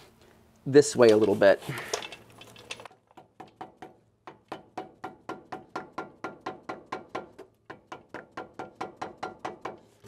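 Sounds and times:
hammer tapping wood block: 3.3s - 9.8s.

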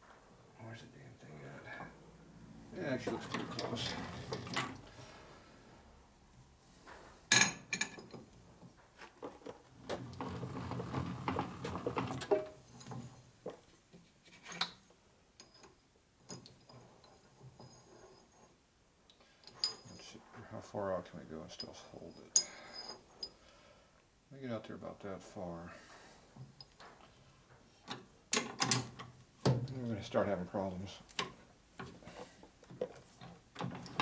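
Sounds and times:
metal clicks and clinks: 15.4s - 17.7s.

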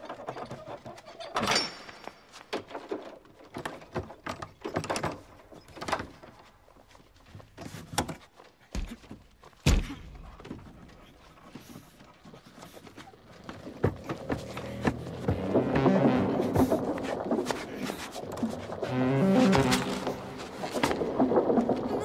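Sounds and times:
heavy thumps: 13.4s - 22.0s.

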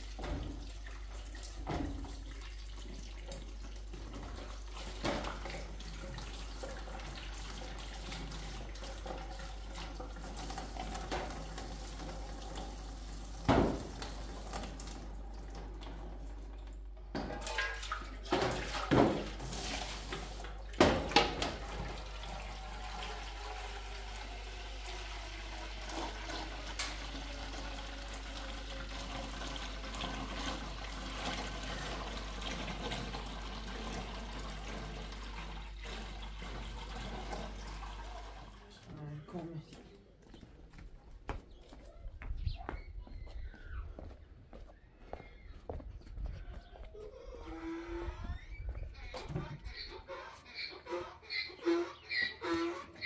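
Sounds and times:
tap water running into sink: 0.0s - 38.6s
water pouring into steel pot: 21.6s - 38.7s.

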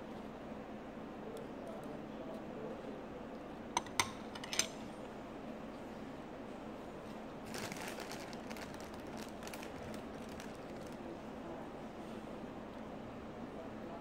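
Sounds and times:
rustling: 7.4s - 11.1s.

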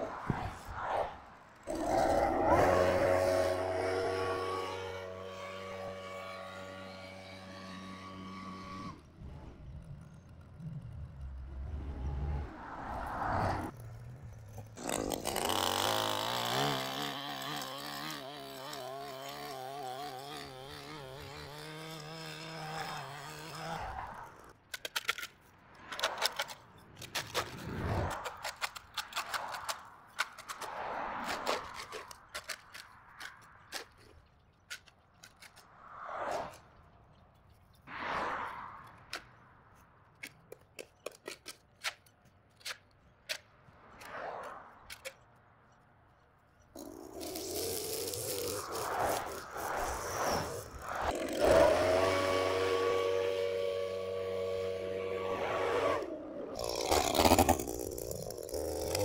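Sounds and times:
traffic passing: 0.0s - 59.0s
small petrol engine running: 1.6s - 25.2s, 46.8s - 59.0s
shovel scraping concrete: 14.4s - 36.6s, 46.8s - 53.4s, 55.3s - 59.0s.

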